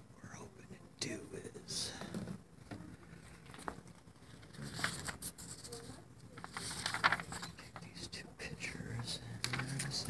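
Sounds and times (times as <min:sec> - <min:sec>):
canvas and paper rustling: 0:02.6 - 0:07.8, 0:09.4 - 0:10.0.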